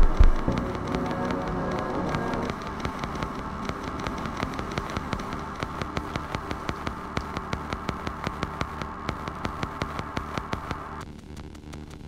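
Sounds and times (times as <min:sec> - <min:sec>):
electronic drone: 0:00.0 - 0:11.1
fast ticking pulse: 0:00.0 - 0:12.0.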